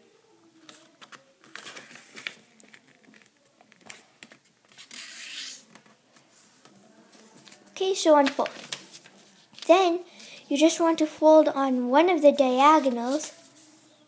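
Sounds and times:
paper rustling and crinkling: 0:00.6 - 0:09.7, 0:12.8 - 0:13.8.

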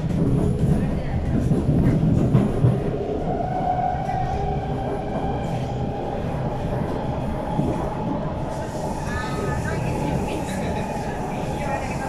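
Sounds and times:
rumble of train wheels on rail: 0:00.0 - 0:12.0
train whine: 0:01.7 - 0:12.0.

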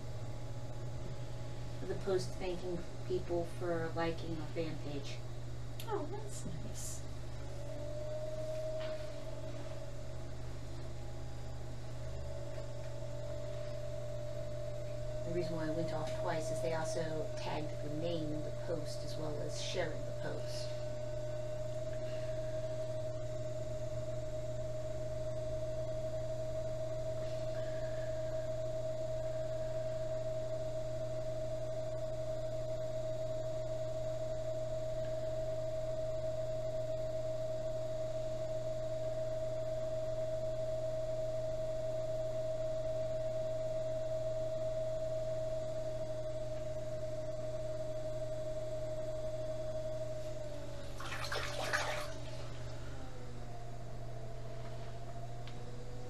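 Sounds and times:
potter's wheel motor whine: 0:00.0 - 0:56.0
water splash in bucket: 0:50.9 - 0:52.3.

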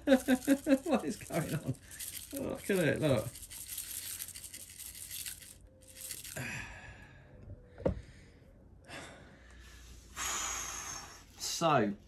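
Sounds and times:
long breathy sigh: 0:10.2 - 0:11.2.

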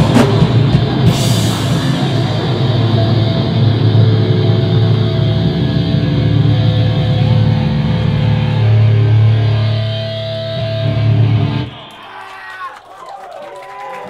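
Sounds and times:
distorted electric guitar and bass: 0:00.0 - 0:12.1.

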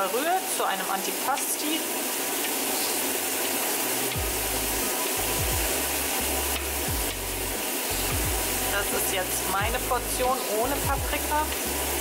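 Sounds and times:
food sizzling in a pan: 0:00.0 - 0:12.0
background music with bass: 0:04.2 - 0:12.0.

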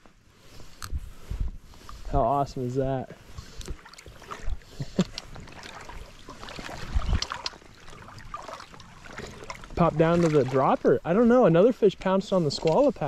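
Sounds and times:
stream water splashing: 0:03.2 - 0:13.0.

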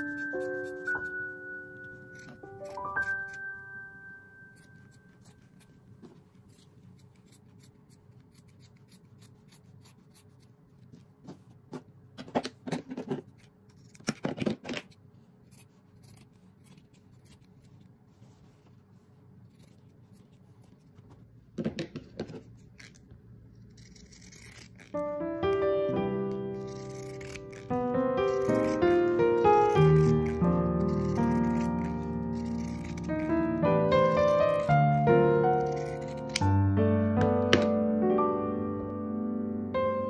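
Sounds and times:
scissors snipping fabric: 0:00.0 - 0:03.6, 0:04.5 - 0:10.9, 0:13.2 - 0:17.9, 0:23.6 - 0:25.6, 0:26.5 - 0:36.5.

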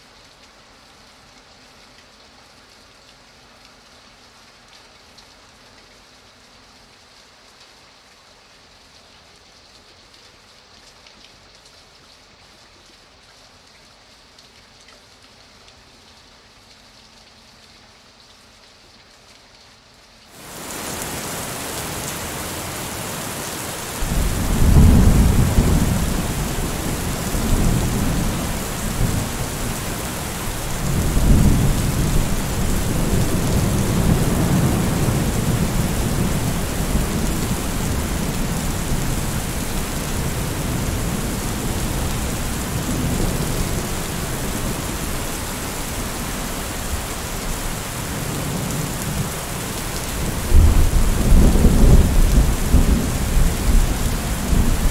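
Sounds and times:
rain hissing: 0:20.3 - 0:54.9
rolling thunder: 0:23.9 - 0:37.9.

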